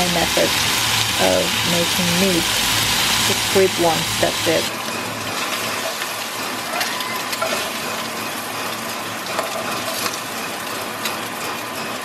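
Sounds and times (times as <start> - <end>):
meat sizzling in a frying pan: 0.0 - 4.8.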